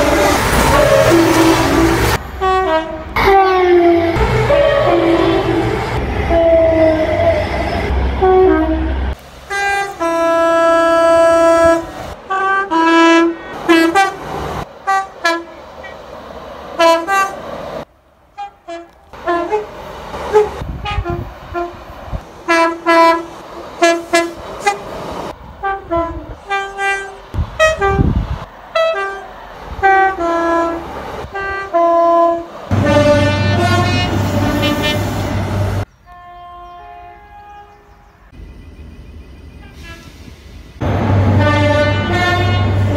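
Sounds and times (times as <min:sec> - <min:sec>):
two-tone train horn blasts: 0:00.0 - 0:03.6, 0:04.2 - 0:05.7, 0:08.2 - 0:14.2, 0:14.8 - 0:16.0, 0:16.8 - 0:17.4, 0:18.4 - 0:19.7, 0:20.3 - 0:21.8, 0:22.5 - 0:24.8, 0:25.6 - 0:28.2, 0:28.8 - 0:35.2, 0:36.0 - 0:38.4, 0:39.6 - 0:40.2, 0:41.2 - 0:42.9.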